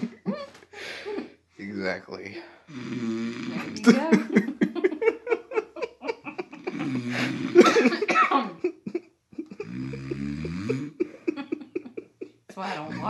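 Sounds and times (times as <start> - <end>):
man snoring: 2.6 - 4.1, 6.6 - 7.9, 9.5 - 11.1.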